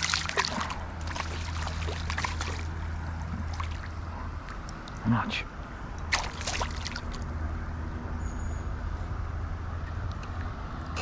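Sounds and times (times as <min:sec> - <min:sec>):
shallow water splashing: 0:00.0 - 0:05.0, 0:06.0 - 0:07.3
low steady hum: 0:00.0 - 0:08.2.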